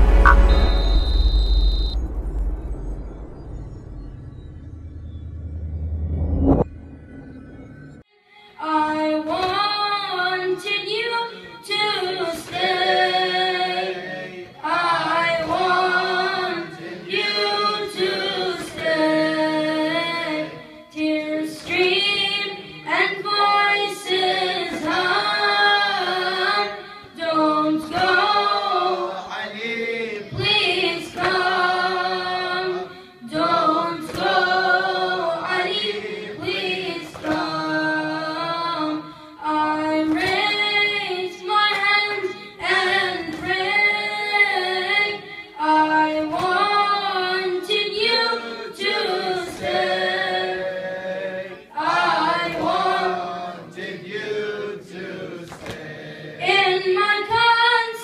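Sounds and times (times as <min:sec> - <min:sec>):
boy singing into a microphone: 0:08.4 - 0:50.9, 0:56.4 - 0:58.0.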